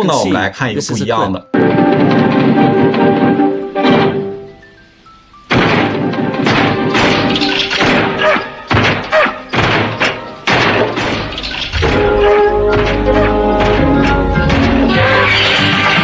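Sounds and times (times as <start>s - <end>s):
music with held notes: 1.1s - 16.0s
cartoon whacks and crashes: 5.5s - 15.3s
low rumble: 11.6s - 15.1s.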